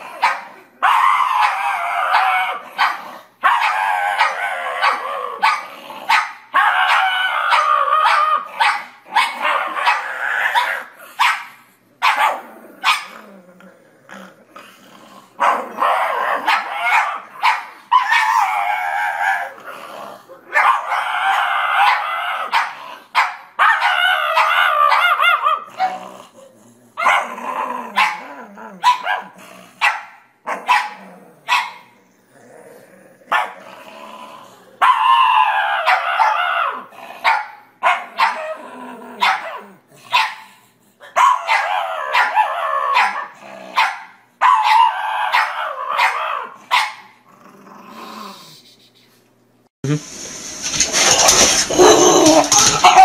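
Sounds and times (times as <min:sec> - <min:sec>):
dog yipping and barking: 0:00.2 - 0:13.1, 0:15.4 - 0:19.5, 0:20.5 - 0:26.0, 0:28.0 - 0:31.9, 0:34.8 - 0:38.6, 0:39.2 - 0:40.4, 0:41.2 - 0:47.1, 0:51.1 - 0:53.0
dog howling grumbles: 0:00.8 - 0:08.5, 0:18.1 - 0:22.5, 0:23.9 - 0:29.7, 0:32.3 - 0:37.2, 0:38.3 - 0:39.9, 0:51.2 - 0:53.0.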